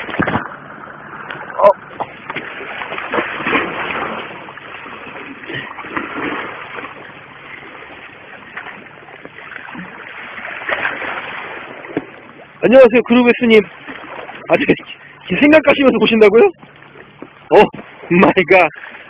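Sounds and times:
sea water splashing against rocks: 0:00.0 - 0:14.7.

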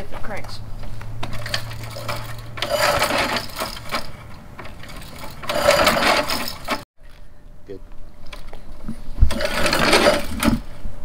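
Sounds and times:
recoil starter cord whirring: 0:01.2 - 0:06.8.

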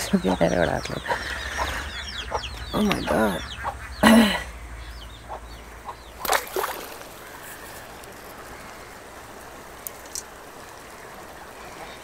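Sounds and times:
river water flowing: 0:04.6 - 0:12.0
faint clicks: 0:09.7 - 0:11.9.

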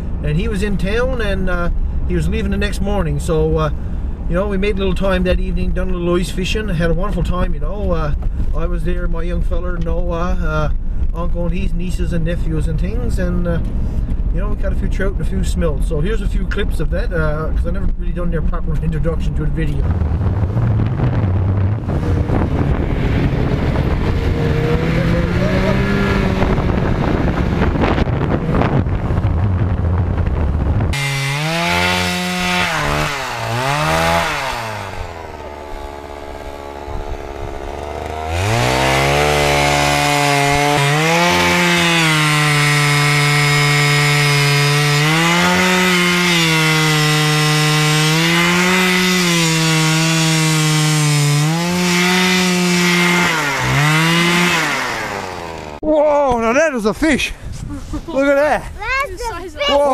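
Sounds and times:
snowmobile engine running: 0:19.8 - 0:29.5, 0:30.9 - 0:55.8, 0:58.1 - 0:59.9
ice auger engine revving: 0:21.5 - 0:27.8, 0:30.9 - 0:55.8.

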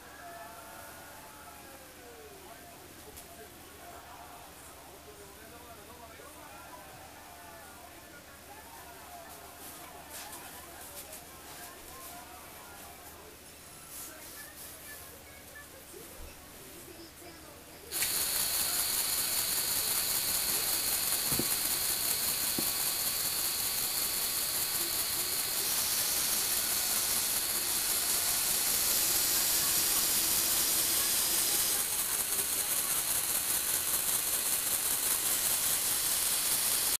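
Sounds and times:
electric motors whirring through gears: 0:17.9 - 0:37.0.

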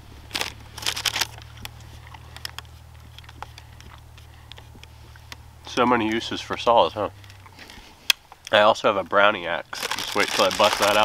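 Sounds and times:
paper crinkling: 0:00.3 - 0:04.7, 0:09.7 - 0:11.0.

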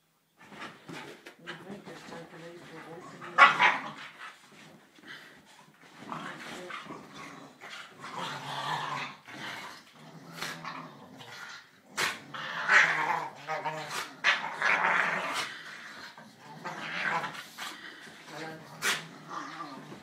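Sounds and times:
dogs growling: 0:05.0 - 0:20.0.

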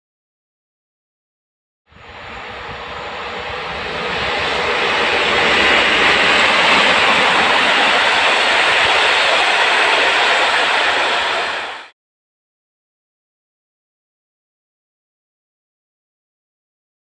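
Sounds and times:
train wheels rumbling on rails: 0:01.9 - 0:11.9.

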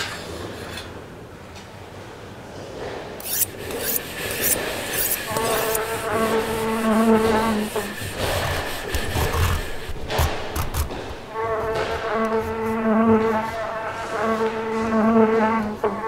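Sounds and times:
rasping scrapes on hard surface: 0:03.2 - 0:16.0
steady buzzing tone: 0:03.2 - 0:16.0.

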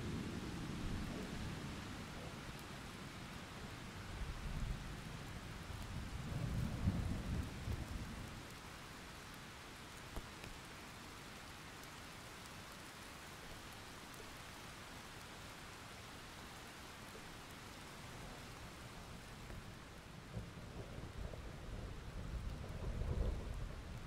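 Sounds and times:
steady rain: 0:00.0 - 0:24.0
thunder rumble: 0:20.2 - 0:24.0.

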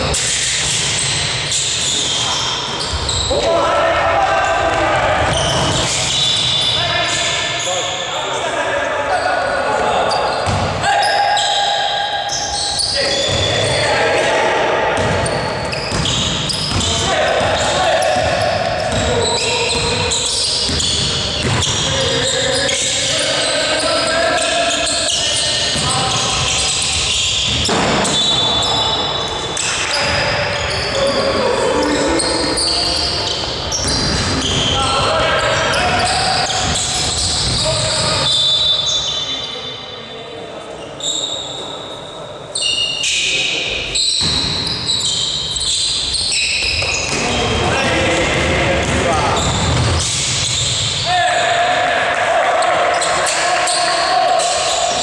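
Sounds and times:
sneakers squeaking on court: 0:00.1 - 0:03.5, 0:05.2 - 0:08.1, 0:09.1 - 0:14.0, 0:15.0 - 0:31.2, 0:31.8 - 0:39.6, 0:40.8 - 0:51.1
basketball bouncing on court floor: 0:10.4 - 0:10.8, 0:15.0 - 0:22.1, 0:46.6 - 0:51.0.

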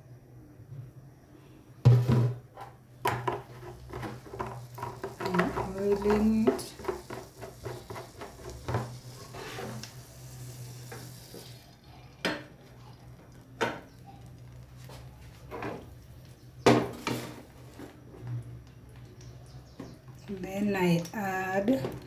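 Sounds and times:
oil sizzling in frying pan: 0:03.1 - 0:11.8.

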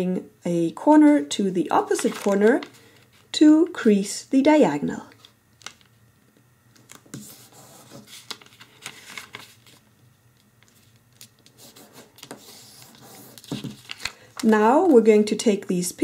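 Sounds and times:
paper rustling and crackling: 0:01.9 - 0:03.3, 0:06.8 - 0:15.0.

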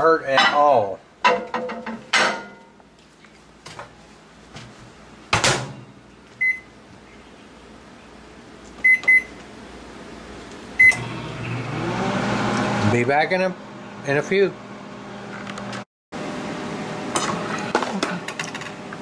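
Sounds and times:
microwave oven running: 0:04.5 - 0:19.0.

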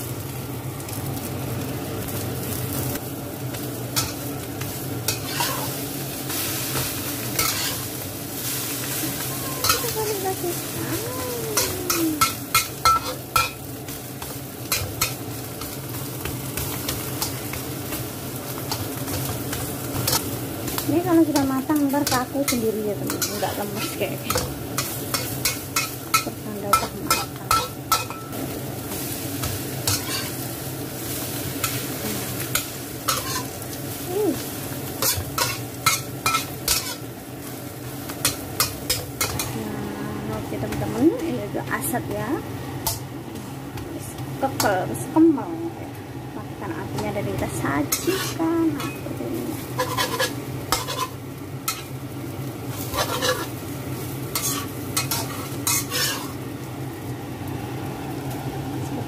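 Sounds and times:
omelette sizzling in oil: 0:00.0 - 0:59.0
metal spatula scraping pan: 0:05.1 - 0:05.8, 0:07.4 - 0:07.9, 0:29.9 - 0:30.4, 0:33.1 - 0:33.5, 0:47.9 - 0:49.0, 0:49.8 - 0:51.9, 0:52.8 - 0:53.6, 0:54.4 - 0:56.4.

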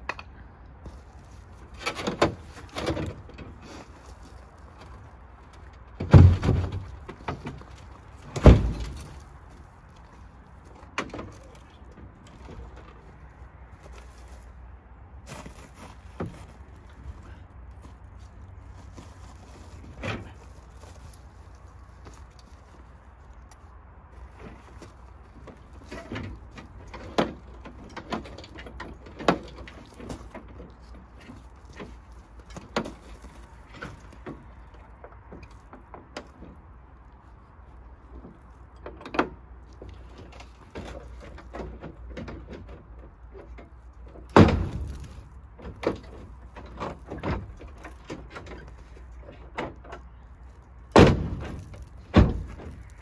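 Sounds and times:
heavy metal clunks: 0:06.0 - 0:09.2, 0:44.2 - 0:48.7, 0:50.9 - 0:52.9.

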